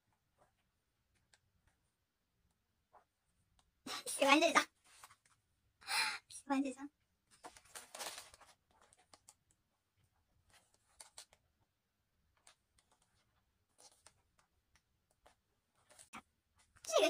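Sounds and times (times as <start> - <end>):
glossy pages rustling: 7.3 - 11.6, 12.2 - 17.0.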